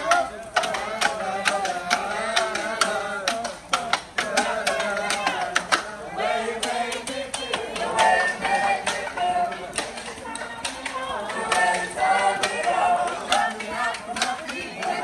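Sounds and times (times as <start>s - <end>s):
group of voices singing: 0.0s - 15.0s
clapping: 8.8s - 15.0s.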